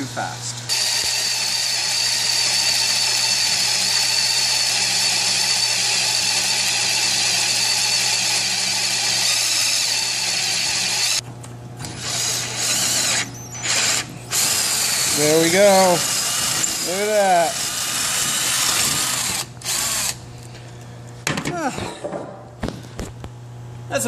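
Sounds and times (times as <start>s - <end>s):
drill boring into steel: 0.7s - 11.2s, 11.9s - 20.2s.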